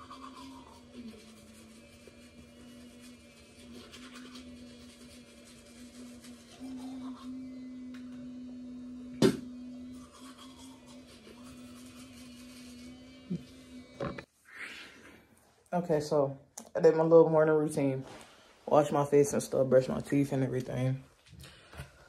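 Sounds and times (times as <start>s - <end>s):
electric toothbrush buzzing: 0.0s - 14.3s.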